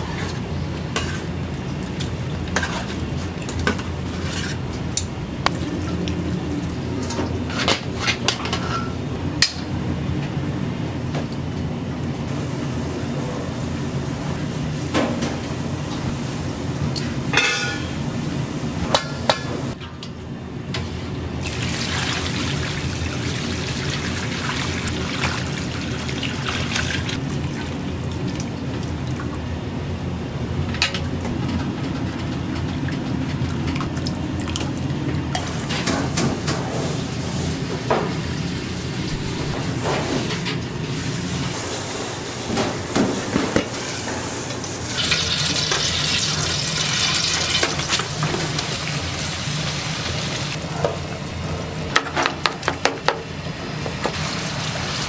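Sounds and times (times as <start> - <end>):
kitchen hum: 0.0 - 55.0
meat sizzling in a wok: 44.9 - 50.6.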